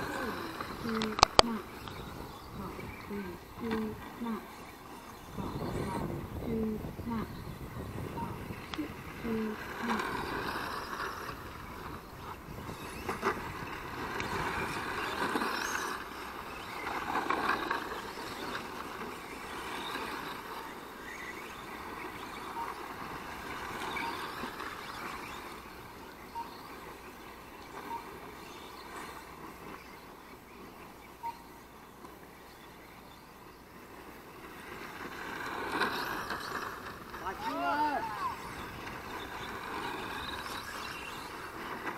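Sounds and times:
model car motors whining: 0.0s - 41.9s
short beeps: 31.2s - 31.6s.

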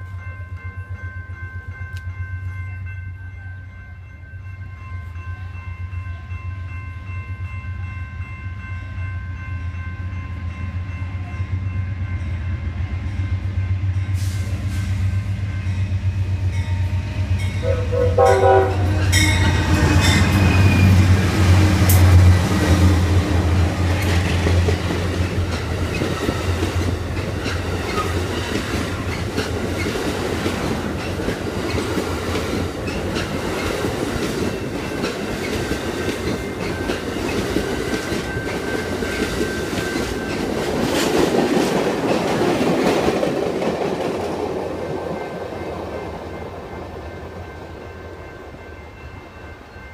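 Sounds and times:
locomotive engines droning: 4.6s - 49.9s
train horn: 16.2s - 23.2s
train wheels clacking over rails: 19.1s - 47.7s.

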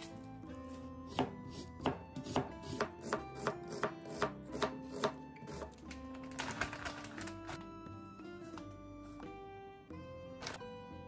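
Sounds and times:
soft background music: 0.0s - 11.0s
knife cutting onion on board: 1.0s - 5.8s.

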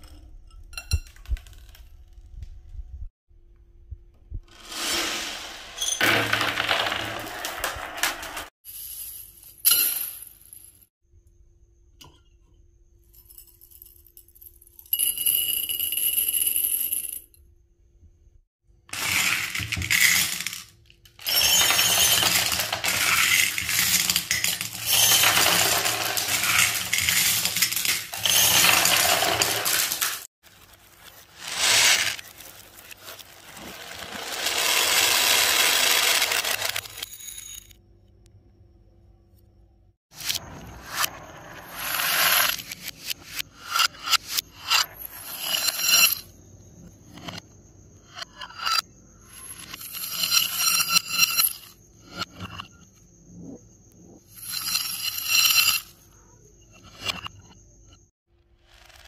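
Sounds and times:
marbles rolling and clinking: 4.6s - 10.2s, 18.9s - 37.8s, 40.2s - 47.4s, 48.0s - 52.8s, 54.2s - 56.1s.

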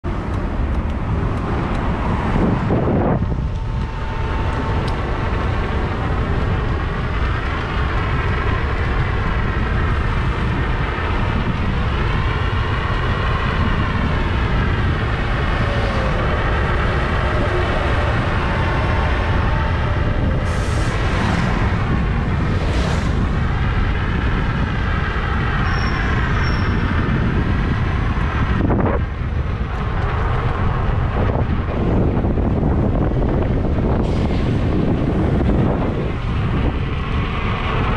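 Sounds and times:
wind rushing on microphone: 0.0s - 37.9s
electric train running: 0.1s - 37.9s.

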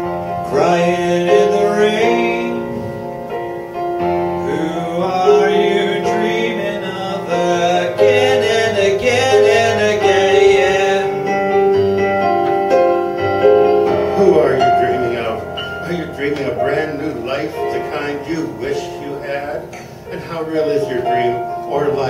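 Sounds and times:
piano playing sustained chords: 0.0s - 22.0s
man singing with vibrato: 0.3s - 3.3s, 4.3s - 11.8s.

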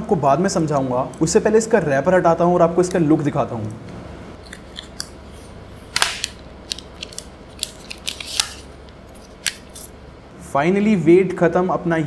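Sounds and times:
plastic wrap peeling and crinkling: 5.9s - 9.9s.

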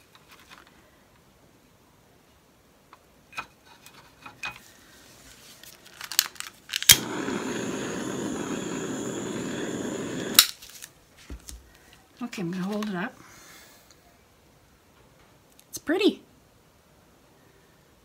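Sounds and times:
torch hissing: 6.8s - 10.6s
torch switch clicking: 6.8s - 10.6s.

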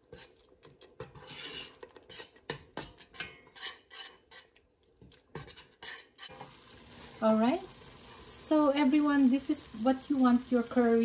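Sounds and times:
metal spoon scraping a pot: 0.0s - 4.6s, 5.3s - 6.6s.

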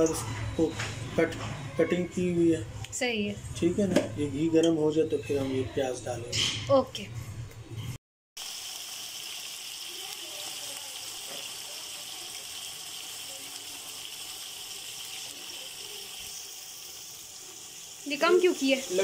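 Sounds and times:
onions sizzling in hot fat: 8.4s - 19.0s.

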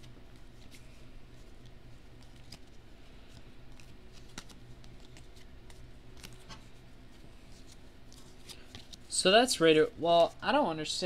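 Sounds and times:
trading cards sliding and snapping: 0.4s - 9.1s.

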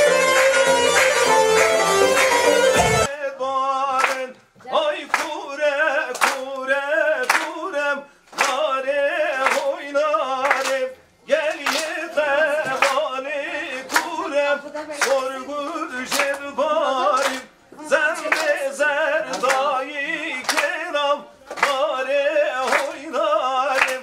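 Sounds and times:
sharp percussive beat: 0.0s - 3.1s
man singing folk song: 3.1s - 24.0s.

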